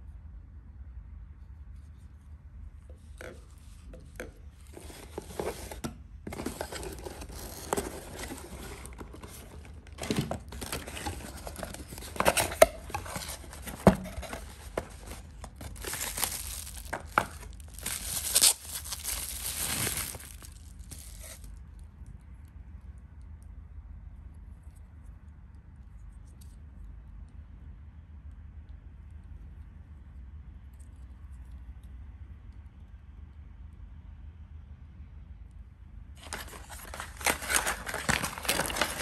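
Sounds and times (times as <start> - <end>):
bubble wrap and plastic bags crinkling: 4.6 - 21.6, 36.2 - 39.0.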